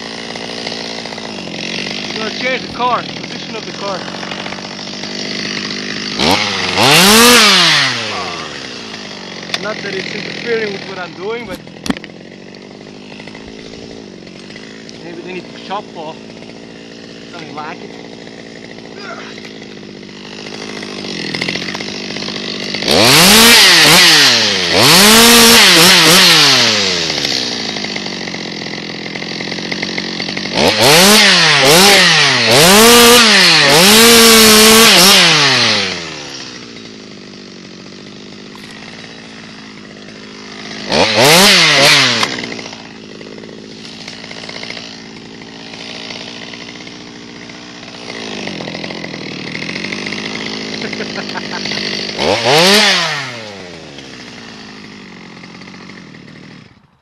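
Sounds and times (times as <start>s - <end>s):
chainsaw idling and revving: 0.0s - 57.0s.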